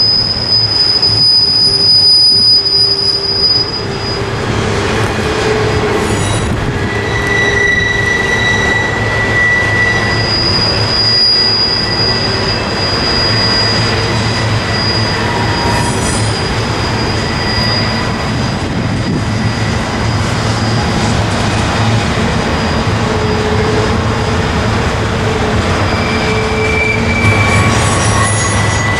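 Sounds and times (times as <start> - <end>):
high-pitched wheel squeal: 0.0 - 28.9
train wheels rumbling on rail: 0.0 - 28.9.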